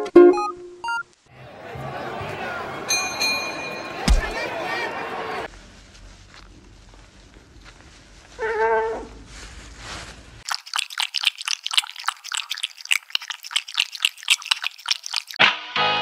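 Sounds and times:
cat chewing corn: 0:10.4 - 0:15.4
cat lapping water: 0:10.4 - 0:15.4.

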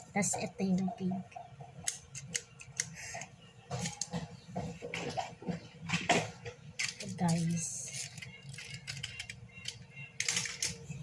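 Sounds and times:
toys rustling in bag: 0:06.8 - 0:10.8.

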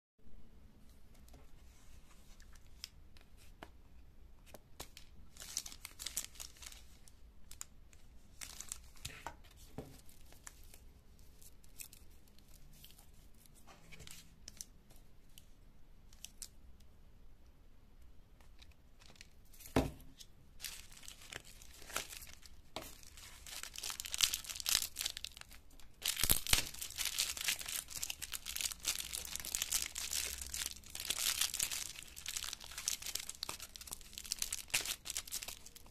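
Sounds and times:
plastic wrapper rustling: 0:04.8 - 0:09.2, 0:18.4 - 0:35.9
foil wrapper crinkling and tearing: 0:05.3 - 0:06.9, 0:20.6 - 0:35.9.

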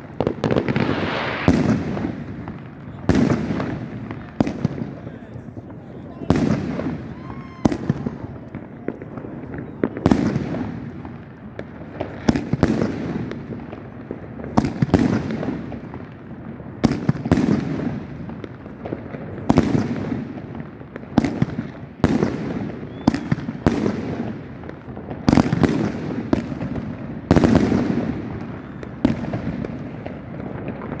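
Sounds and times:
fireworks hiss: 0:00.0 - 0:05.2
fireworks bangs: 0:00.0 - 0:31.0.

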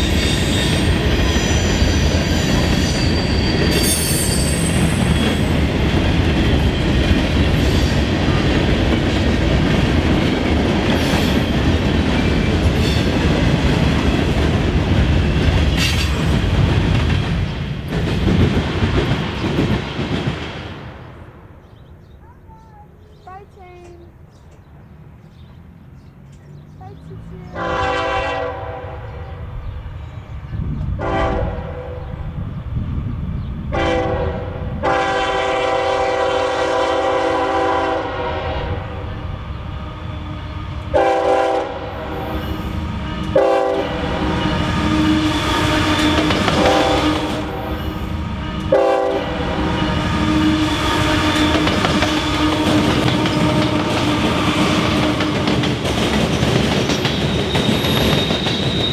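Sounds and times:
diesel locomotive and wheels on rails: 0:00.0 - 0:58.9
locomotive air horn blasts: 0:27.5 - 0:29.1, 0:31.0 - 0:32.0, 0:33.7 - 0:38.8, 0:40.9 - 0:42.2, 0:43.0 - 0:47.7, 0:48.4 - 0:55.4.

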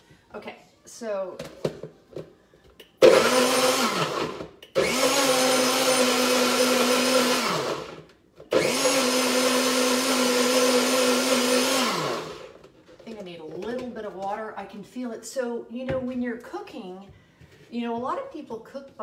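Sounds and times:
blender motor humming: 0:03.0 - 0:12.6.

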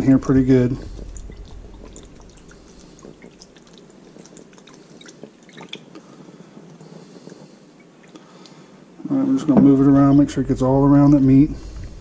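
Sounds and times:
sauce dripping: 0:00.8 - 0:08.6.

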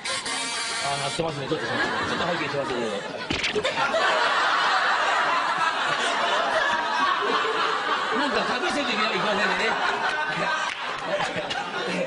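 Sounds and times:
people laughing: 0:00.0 - 0:12.0
people talking: 0:00.8 - 0:03.6, 0:08.0 - 0:10.6.

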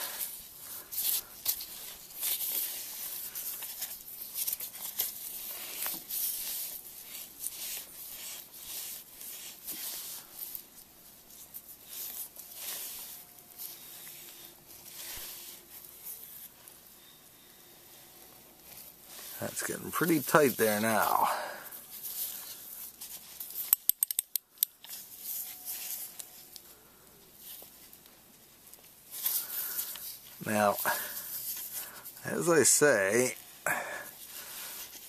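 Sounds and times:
strap wrench rasping on oil filter: 0:23.6 - 0:24.7.

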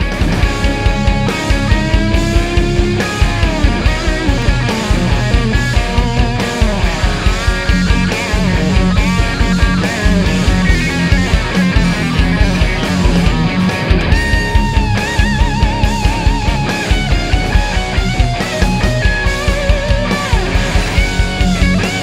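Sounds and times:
electric guitar rock lead: 0:00.0 - 0:22.0
fast steady kick drum beat: 0:00.0 - 0:22.0.

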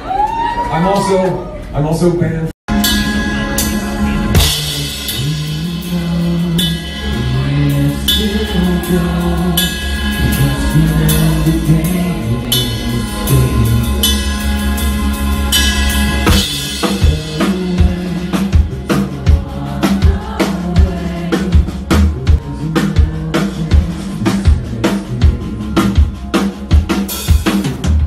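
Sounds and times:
live rock band playing: 0:02.7 - 0:28.0
person singing: 0:03.6 - 0:14.5, 0:16.6 - 0:26.5.

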